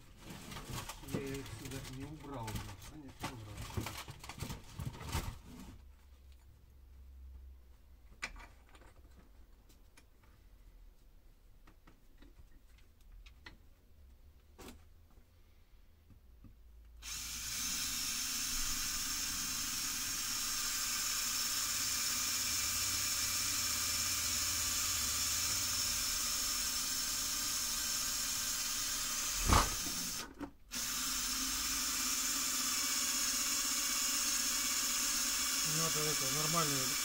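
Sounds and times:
electric drill whirring: 17.0s - 37.0s.

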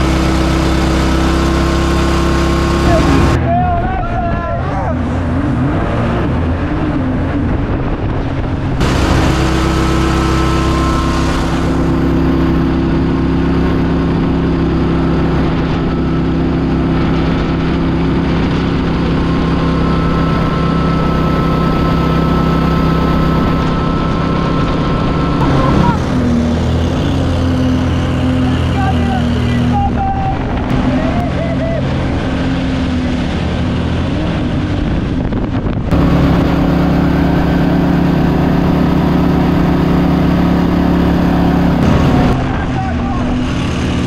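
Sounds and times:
boat engine running: 0.0s - 44.0s
wind and water spray: 5.0s - 25.4s, 30.4s - 44.0s.

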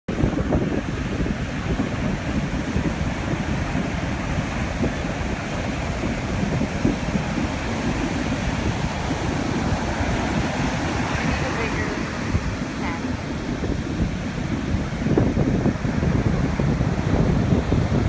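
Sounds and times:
ocean surf breaking: 0.1s - 18.0s
wind buffeting microphone: 0.1s - 18.0s.

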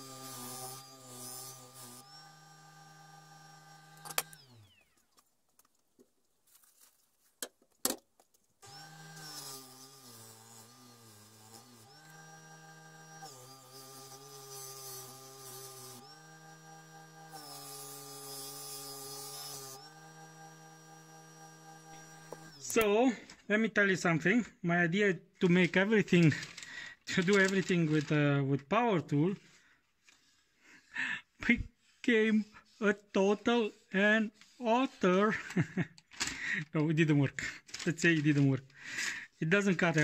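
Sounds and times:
electric motor humming: 0.0s - 5.0s, 8.6s - 22.8s.

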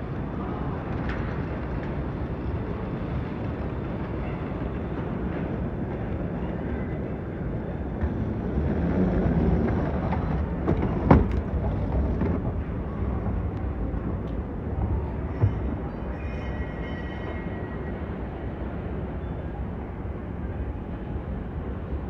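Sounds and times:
escalator rumbling: 0.0s - 16.1s.

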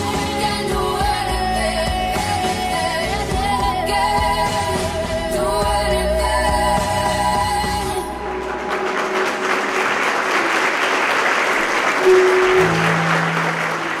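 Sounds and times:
recorded song: 0.0s - 14.0s
audience applauding: 8.1s - 14.0s.

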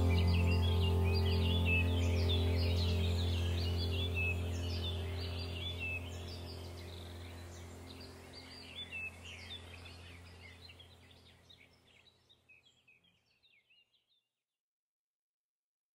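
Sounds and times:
steady low hum: 0.0s - 12.3s
small birds chirping: 0.0s - 14.2s.

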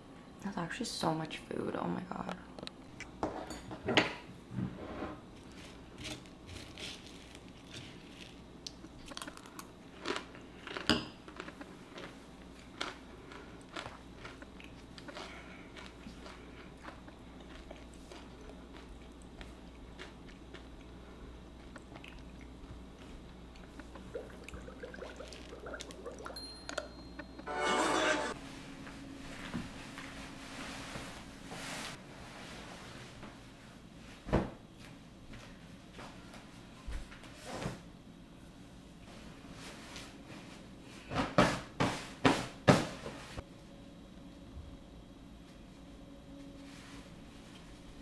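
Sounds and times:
crunchy chewing: 5.5s - 24.2s.

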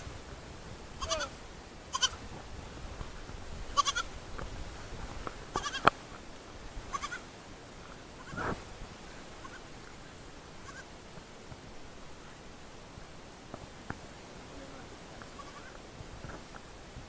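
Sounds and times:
young goat bleating: 1.0s - 2.3s, 3.7s - 4.1s, 5.5s - 6.0s, 6.8s - 7.3s, 8.2s - 8.4s, 9.4s - 9.7s, 10.6s - 10.9s, 15.2s - 15.8s.

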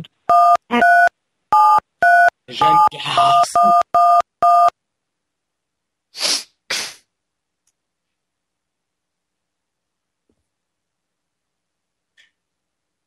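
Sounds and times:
telephone keypad touch-tones: 0.3s - 4.7s
short hissing noises: 6.2s - 7.1s.

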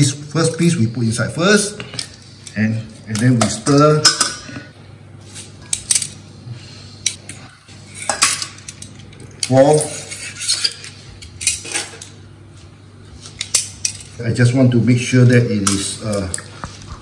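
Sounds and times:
utensils clinking against metal bowl: 1.8s - 4.7s, 7.0s - 12.2s.

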